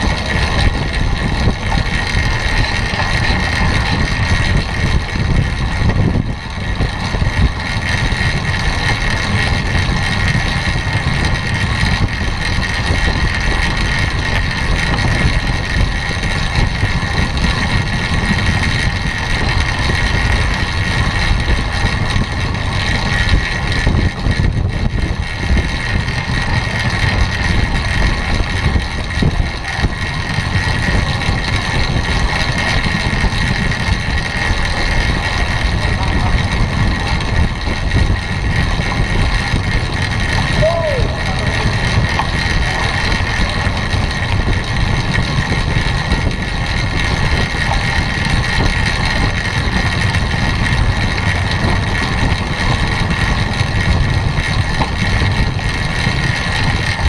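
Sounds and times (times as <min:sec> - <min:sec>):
tyre and drivetrain hum: 0:00.0 - 0:57.0
wind rushing over microphone: 0:00.0 - 0:57.0.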